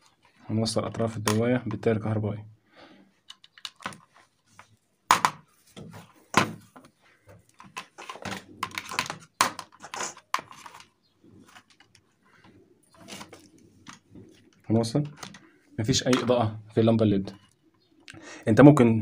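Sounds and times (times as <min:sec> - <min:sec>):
soft rustling of wires: 0:03.0 - 0:18.1.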